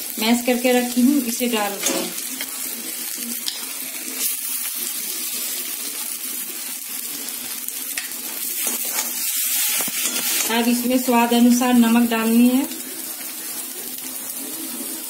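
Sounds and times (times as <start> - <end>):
food sizzling in hot oil: 0.0 - 15.0
metal spatula scraping: 1.7 - 2.6, 8.6 - 10.7.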